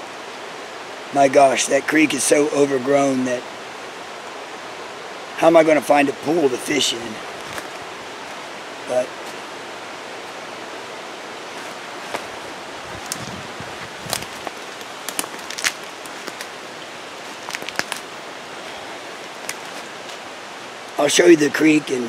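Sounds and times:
creek rushing: 0.0s - 22.0s
rustling leaves and snapping twigs: 6.6s - 21.0s.

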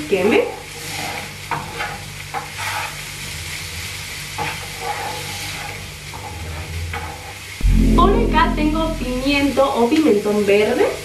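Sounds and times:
onion and garlic sizzling in oil: 0.0s - 7.5s
spatula scraping a pan: 0.8s - 3.0s, 4.4s - 5.9s.

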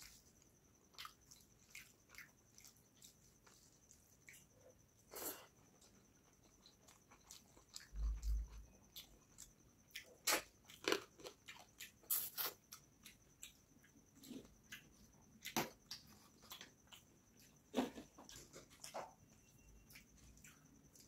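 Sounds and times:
wet chewing and lip smacks: 19.9s - 21.0s.

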